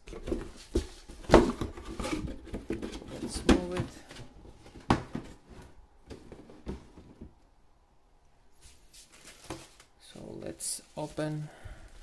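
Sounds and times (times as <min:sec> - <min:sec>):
box rustling: 0:00.0 - 0:07.3.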